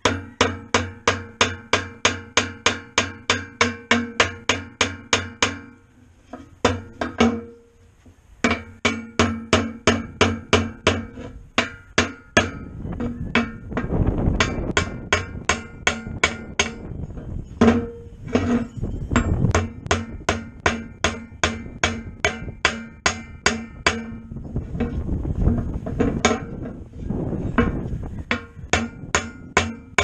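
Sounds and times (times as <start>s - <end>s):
hammer tapping metal: 0.0s - 5.8s, 8.5s - 26.8s, 27.6s - 30.0s
wind rumble on microphone: 9.6s - 30.0s.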